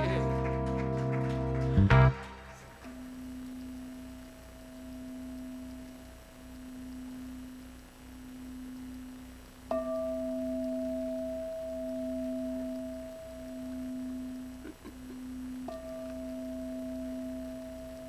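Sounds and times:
singing bowl struck: 0:02.5 - 0:07.6, 0:09.7 - 0:14.6, 0:15.3 - 0:18.0
singing bowl ringing: 0:02.8 - 0:14.6, 0:15.2 - 0:18.0.

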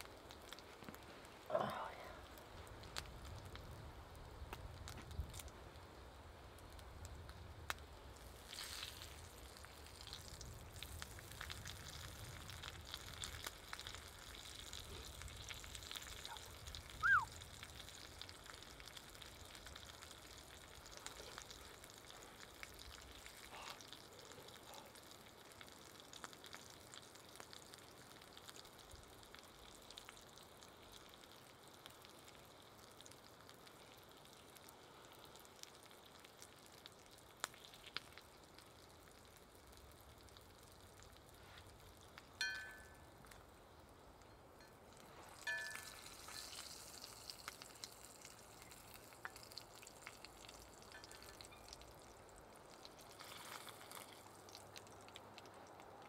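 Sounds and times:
meat sizzling in a pan: 0:07.6 - 0:24.0, 0:45.0 - 0:54.6
short falling whistle: 0:17.0 - 0:17.4.

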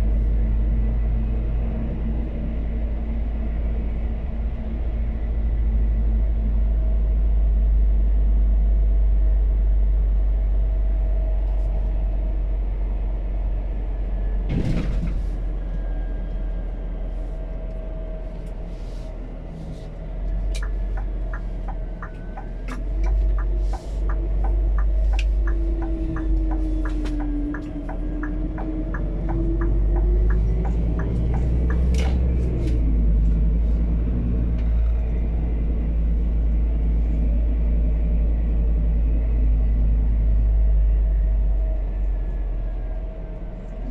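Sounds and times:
truck engine rumble from inside cab: 0:00.0 - 0:43.9
turn signal ticking: 0:20.5 - 0:32.5.

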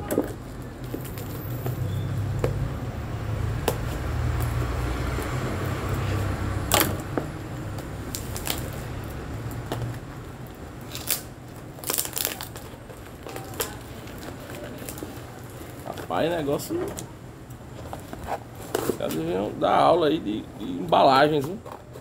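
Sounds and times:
parcel being torn open: 0:10.8 - 0:15.0.

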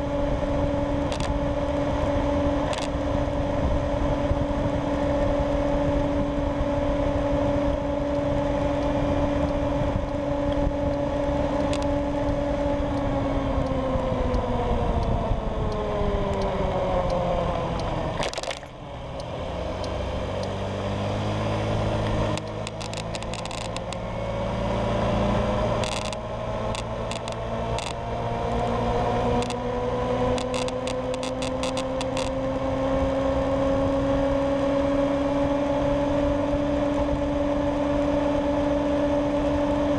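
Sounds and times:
wind rush on microphone: 0:00.0 - 0:18.9, 0:21.1 - 0:39.9
clicks: 0:15.7 - 0:20.6, 0:22.0 - 0:24.0, 0:25.8 - 0:28.7, 0:30.4 - 0:32.3
scooter engine: 0:16.1 - 0:39.9.

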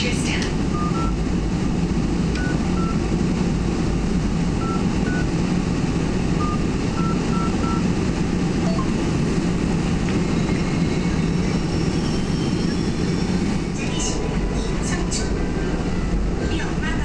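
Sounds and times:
train running low rumble: 0:00.0 - 0:17.0
short high beeps: 0:08.6 - 0:09.0.

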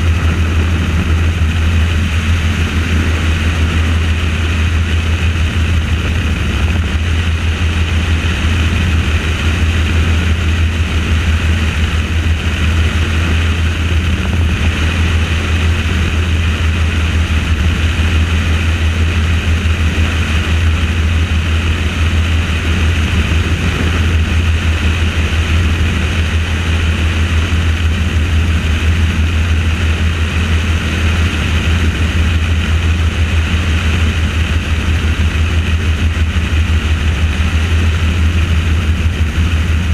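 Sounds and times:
helicopter rotor and engine hum: 0:00.0 - 0:39.9.

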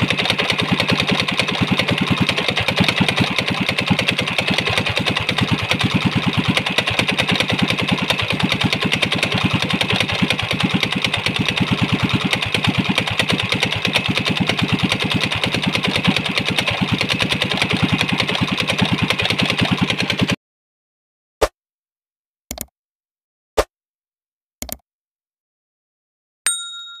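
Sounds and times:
small engine running fast: 0:00.0 - 0:20.4
short clicks: 0:22.5 - 0:22.7
ringing chime: 0:26.5 - 0:27.0.

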